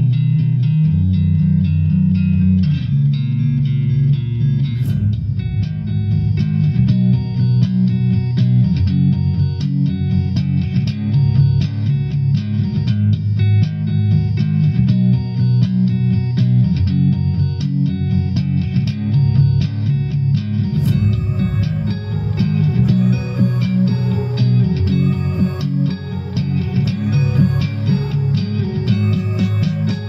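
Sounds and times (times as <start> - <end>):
bass line: 0.0 - 30.0
plucked guitar: 0.0 - 30.0.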